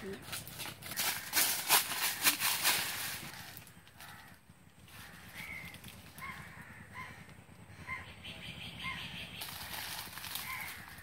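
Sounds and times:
leaves and branches rustling: 0:00.0 - 0:06.6, 0:09.2 - 0:11.0
bird calling: 0:03.0 - 0:11.0.

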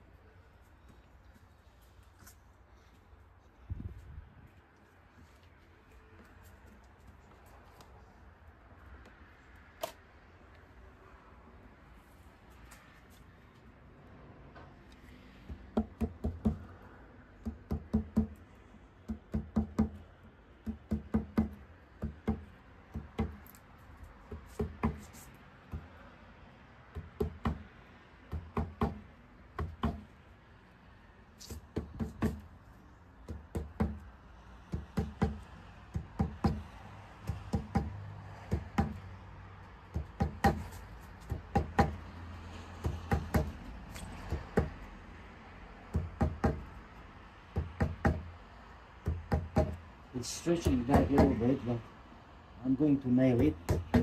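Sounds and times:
hammer knocking on wood: 0:37.3 - 0:37.9, 0:38.5 - 0:39.0, 0:39.9 - 0:40.6, 0:41.3 - 0:42.0, 0:42.8 - 0:43.5, 0:45.9 - 0:46.6, 0:49.0 - 0:49.8, 0:50.6 - 0:51.4, 0:53.6 - 0:54.0.

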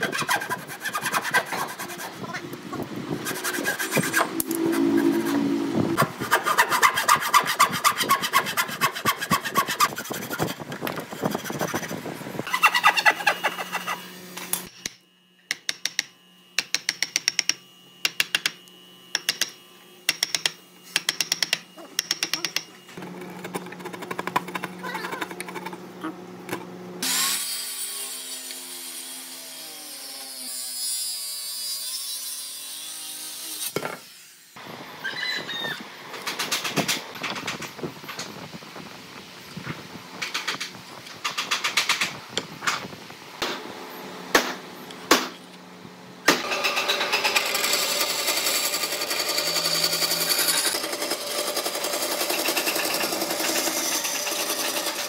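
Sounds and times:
hand saw rasping through wood: 0:00.0 - 0:02.3, 0:03.2 - 0:10.6, 0:47.4 - 0:55.0
circular saw cutting wood: 0:00.0 - 0:14.8, 0:27.0 - 0:34.6, 0:46.4 - 0:55.0.

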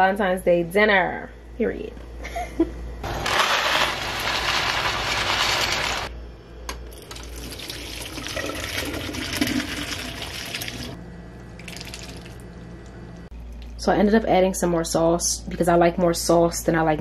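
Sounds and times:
water pouring and splashing: 0:07.0 - 0:11.0, 0:11.6 - 0:12.4.

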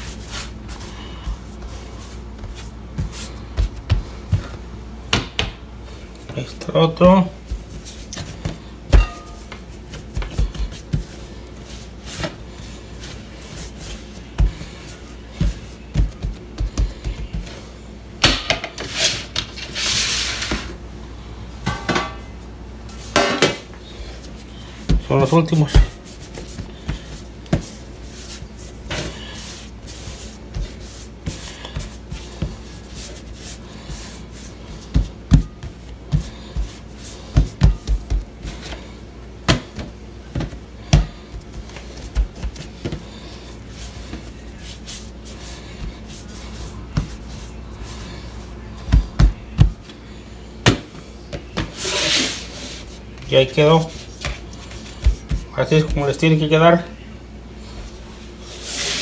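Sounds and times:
hands rubbing dough: 0:00.0 - 0:04.7, 0:07.1 - 0:17.8, 0:23.9 - 0:39.0, 0:39.8 - 0:50.0, 0:51.8 - 0:56.6
steady low hum: 0:00.0 - 0:59.0
dough rolls knocking on surface: 0:05.1 - 0:05.6.

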